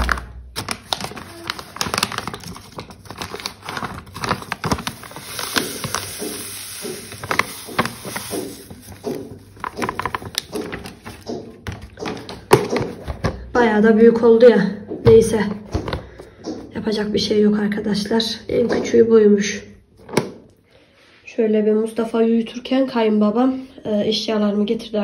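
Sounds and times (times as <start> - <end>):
plastic bag crinkling: 0.0 - 11.9
granules pouring hiss: 5.0 - 9.6
taps on plastic box: 5.4 - 13.4.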